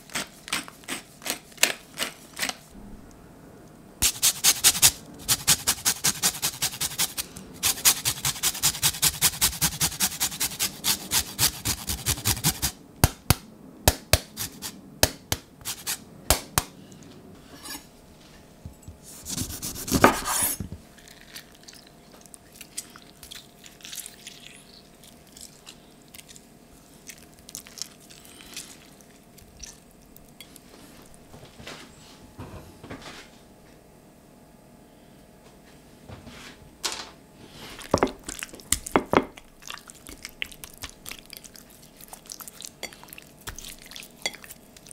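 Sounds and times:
lemon rasping on metal grater: 4.0 - 12.7
knife cutting on wooden board: 19.2 - 20.7.

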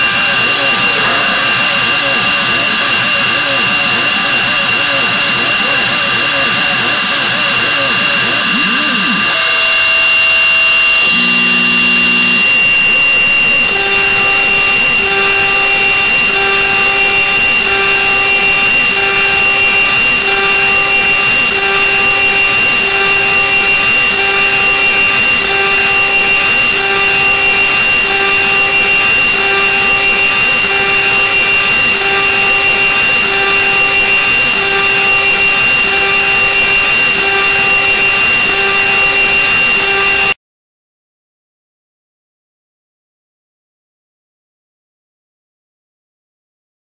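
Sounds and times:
spindle high whine: 0.0 - 40.4
low pulsing hum: 10.9 - 38.3.

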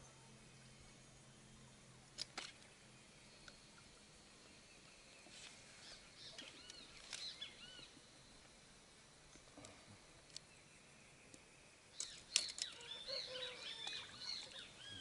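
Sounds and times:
faint bird chirps: 2.7 - 8.5, 9.6 - 15.0.

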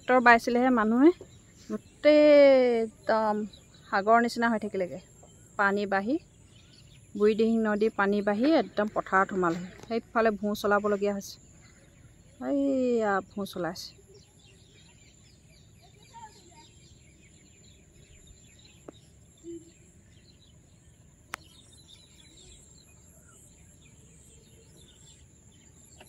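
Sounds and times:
faint bird chirps: 0.0 - 26.0.

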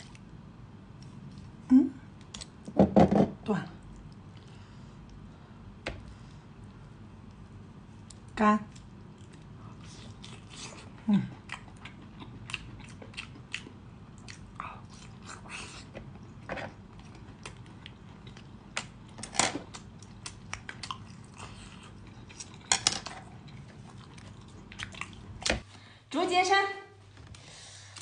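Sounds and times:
chewing and biting: 8.0 - 15.8, 16.9 - 25.6.

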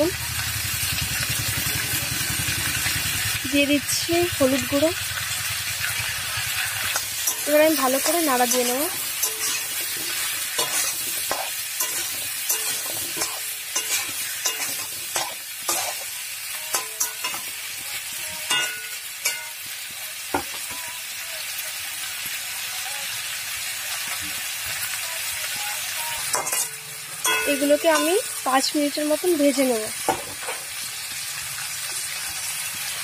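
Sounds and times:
vegetables sizzling in oil: 0.0 - 33.0
spatula scraping a pan: 5.8 - 16.1.

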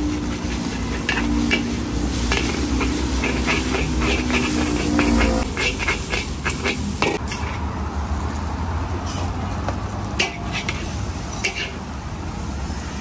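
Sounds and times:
metal spatula clanking in wok: 0.4 - 7.6, 10.2 - 11.8.

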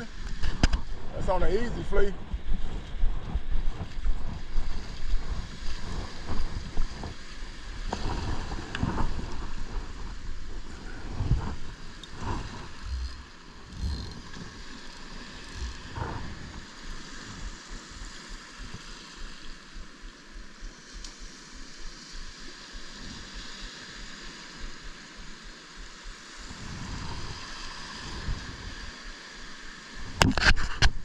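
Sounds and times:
wind buffeting microphone: 0.0 - 20.4, 25.8 - 29.2
surf breaking on beach: 3.4 - 20.0, 26.4 - 29.1.

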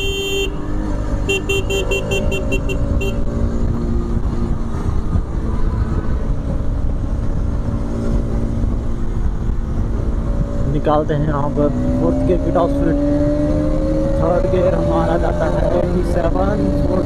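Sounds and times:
horn beeping: 0.0 - 3.3
wind noise on microphone: 0.0 - 12.3, 12.9 - 17.0.

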